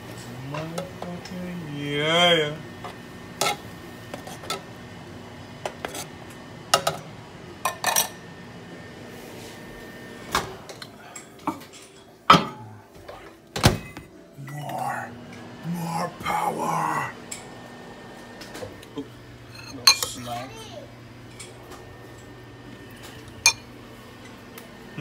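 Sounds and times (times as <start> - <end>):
faint hum: 0.0 - 25.0
pans and dishes clinking: 10.7 - 14.1, 19.5 - 20.3, 23.0 - 23.7
metal spoon scraping saucepan: 19.5 - 20.3.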